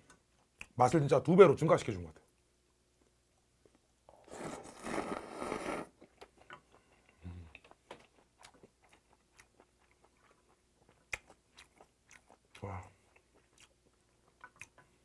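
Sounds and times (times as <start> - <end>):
man slurping noodles: 4.3 - 5.9
wet chewing clicks: 7.5 - 15.0.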